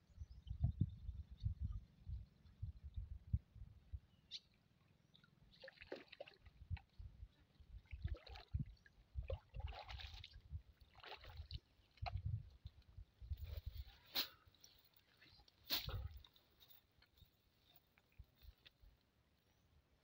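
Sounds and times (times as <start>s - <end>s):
water splashing and dripping: 5.6s - 13.0s.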